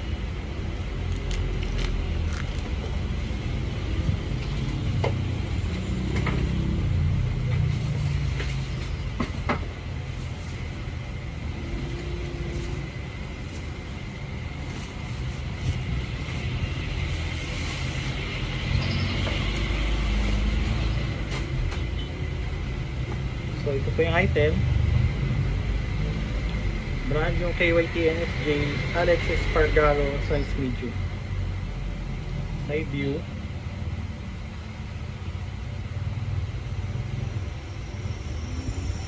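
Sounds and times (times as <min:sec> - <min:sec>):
plastic wrap crinkling: 0:01.1 - 0:02.8.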